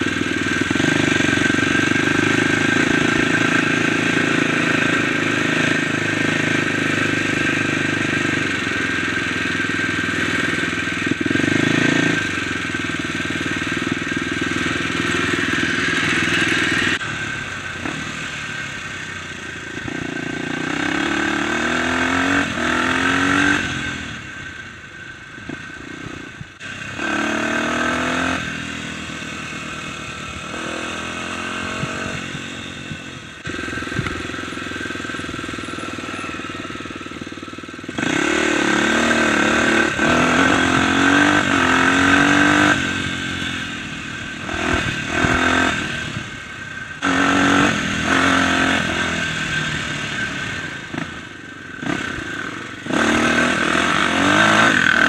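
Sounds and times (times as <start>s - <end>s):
dirt bike engine revving: 0.0s - 24.5s, 25.4s - 55.0s.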